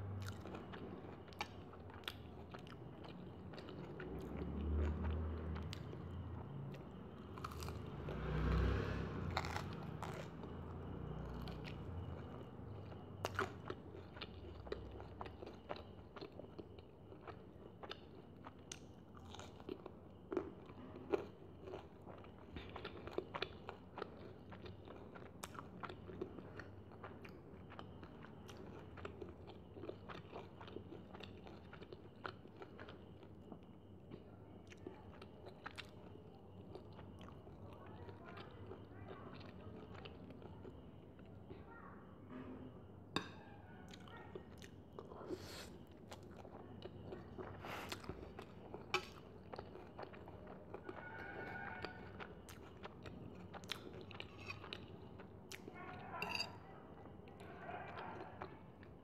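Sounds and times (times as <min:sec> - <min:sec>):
wet chewing: 0:06.7 - 0:37.7, 0:43.9 - 0:56.4
crunchy bites: 0:07.4 - 0:16.4.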